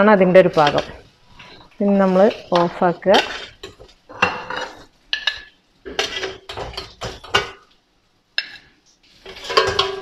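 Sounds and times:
spoon clinking on steel basket: 0:09.4 - 0:10.0.

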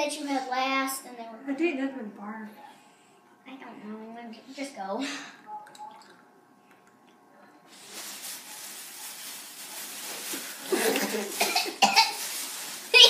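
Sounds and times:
plastic bag rustling: 0:07.7 - 0:13.0.

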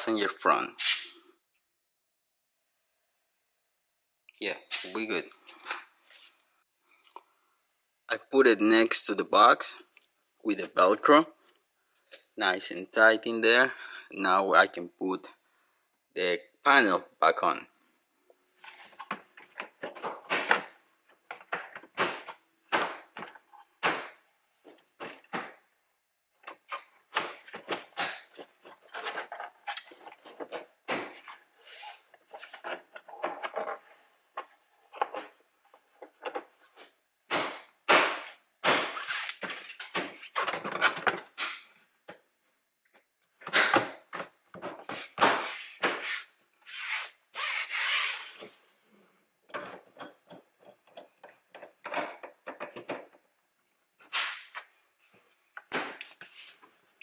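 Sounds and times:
plastic scraping against plastic: 0:26.4 - 0:36.9.

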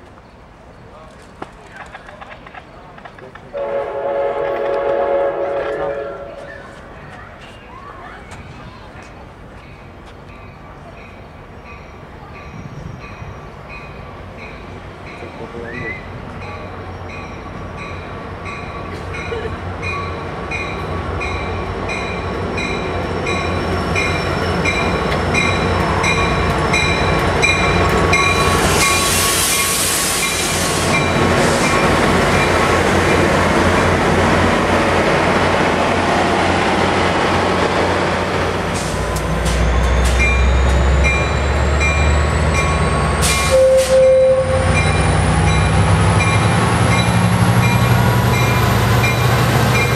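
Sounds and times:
diesel locomotive rumble: 0:00.9 - 0:49.9
train bell ringing: 0:09.6 - 0:32.8, 0:39.4 - 0:49.9
air hiss burst: 0:28.5 - 0:31.8
short tone: 0:43.3 - 0:45.0.

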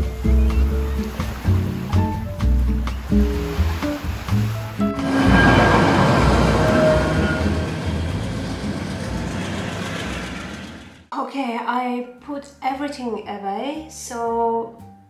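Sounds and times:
train rushing rumble: 0:04.8 - 0:11.1.

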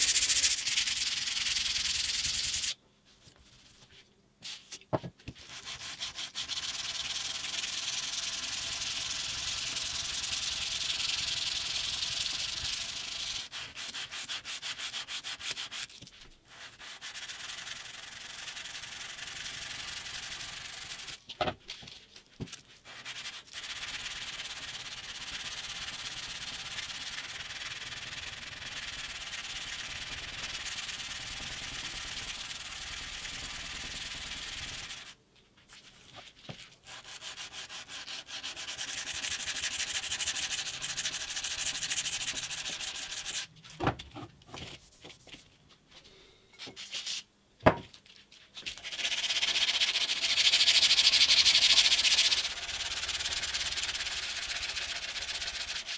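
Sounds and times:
knife blade being sanded: 0:00.0 - 0:02.8, 0:05.4 - 0:15.9, 0:16.5 - 0:21.2, 0:22.8 - 0:35.2, 0:36.8 - 0:43.5, 0:48.7 - 0:55.9.

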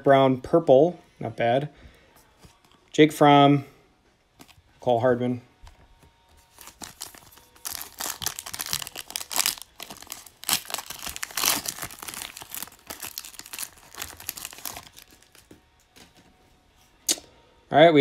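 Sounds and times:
foil wrapper crinkling: 0:06.5 - 0:15.6.

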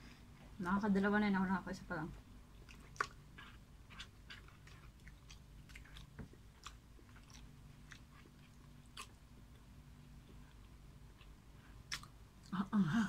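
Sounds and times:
faint low hum: 0:00.0 - 0:13.0
people chewing: 0:02.5 - 0:12.5.

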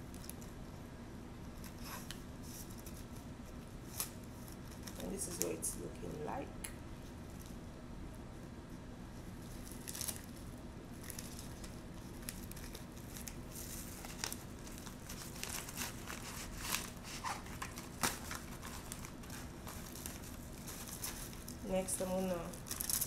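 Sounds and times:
packaging crinkling and rustling: 0:01.5 - 0:05.7, 0:09.4 - 0:23.0.

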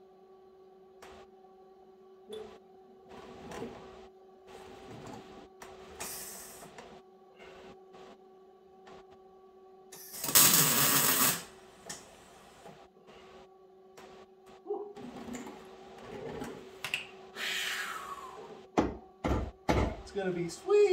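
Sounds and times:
welder arc bursts: 0:10.0 - 0:11.5.

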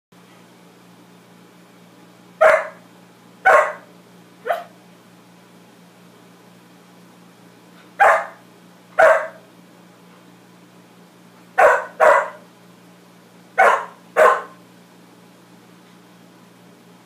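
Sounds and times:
dog barking: 0:02.4 - 0:02.8, 0:03.4 - 0:04.8, 0:08.0 - 0:08.4, 0:09.0 - 0:09.5, 0:11.6 - 0:12.4, 0:13.6 - 0:14.6.

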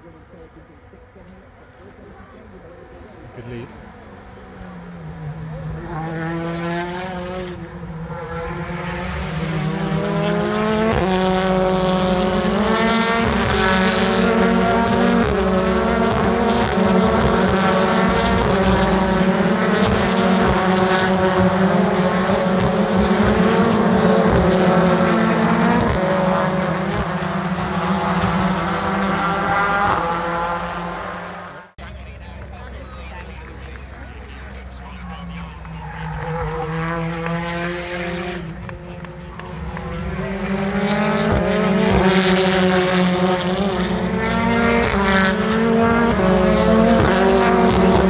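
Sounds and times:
race car engines passing: 0:00.0 - 0:48.0.

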